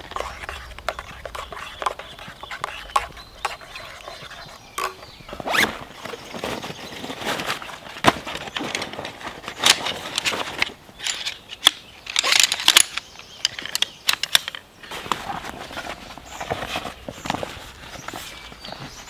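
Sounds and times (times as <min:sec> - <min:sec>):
nylon fabric rustling: 0:05.3 - 0:10.6.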